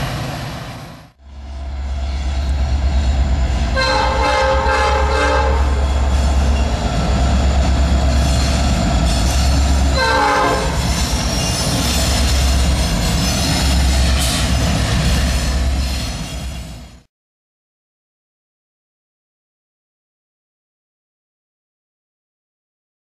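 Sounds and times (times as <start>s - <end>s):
diesel locomotive engines droning: 0.0s - 17.1s
multi-tone train horn: 3.7s - 6.0s, 10.0s - 10.8s.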